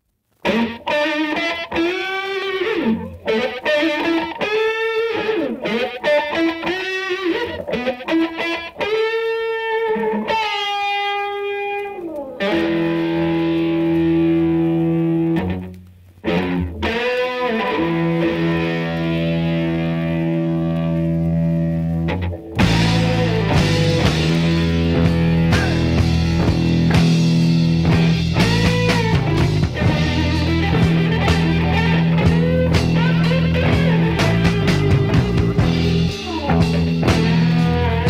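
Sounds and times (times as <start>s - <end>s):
distorted electric guitar solo: 0.0s - 38.0s
deep bass: 22.6s - 38.0s.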